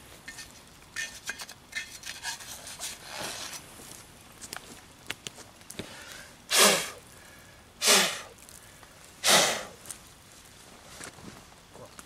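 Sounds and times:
person breathing forcefully: 0:05.8 - 0:09.8.

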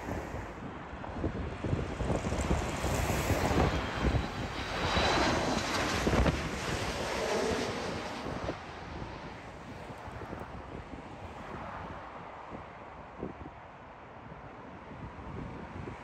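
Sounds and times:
jet airliner passing overhead: 0:00.0 - 0:12.8
wind buffeting microphone: 0:00.0 - 0:13.6.

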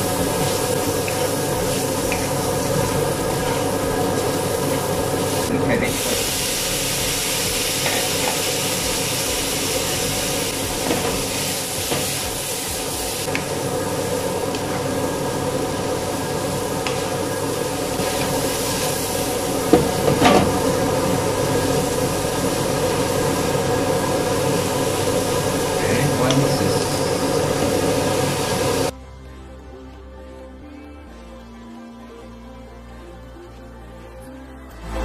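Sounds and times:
cabbage sizzling in a wok: 0:00.0 - 0:28.9
wooden spatula scraping a pan: 0:00.2 - 0:05.5.

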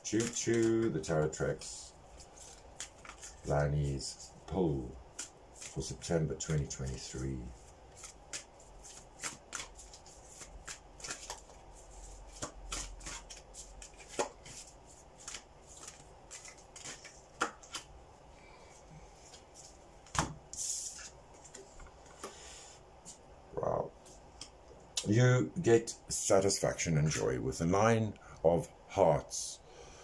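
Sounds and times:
playing cards shuffling: 0:00.1 - 0:17.9.

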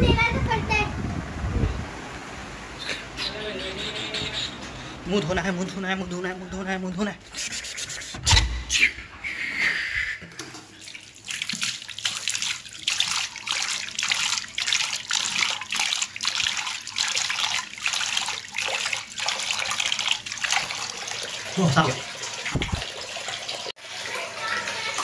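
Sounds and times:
water splashing face washing: 0:07.2 - 0:08.4, 0:10.3 - 0:25.0
tap running into sink: 0:22.4 - 0:22.9.

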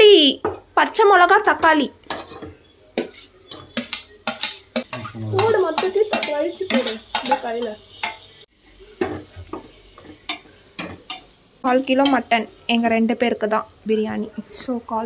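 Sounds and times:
sizzling: 0:00.0 - 0:15.0
ladle scraping metal pot: 0:02.1 - 0:08.3.

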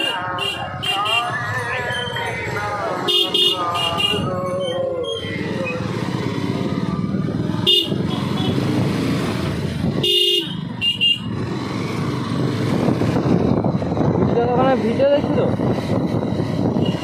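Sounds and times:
motorcycle horn: 0:00.0 - 0:01.4, 0:03.0 - 0:04.4, 0:07.6 - 0:08.7, 0:09.9 - 0:11.3
motorcycle engine and road noise: 0:00.0 - 0:17.0.

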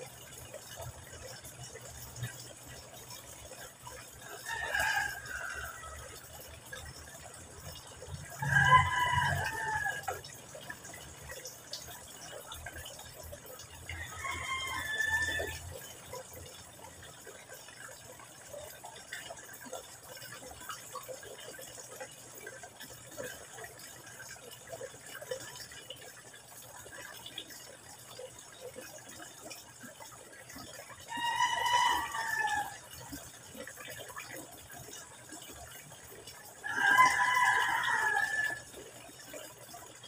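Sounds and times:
water trickling into a pond: 0:00.0 - 0:40.0.

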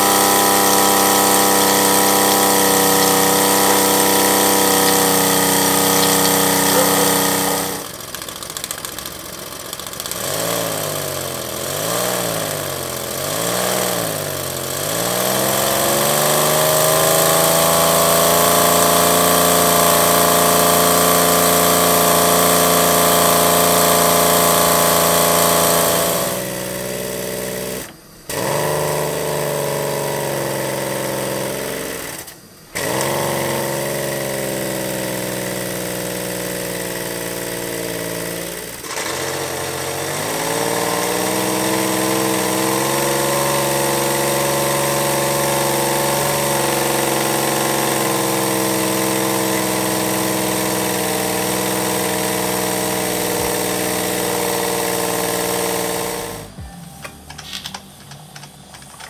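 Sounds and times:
miniature steam engine whirring: 0:00.0 - 0:59.0.

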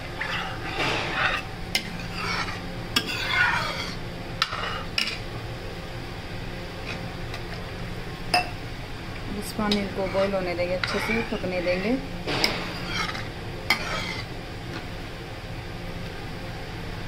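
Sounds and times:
spoon scraping metal pan: 0:00.0 - 0:05.2, 0:09.7 - 0:14.3.

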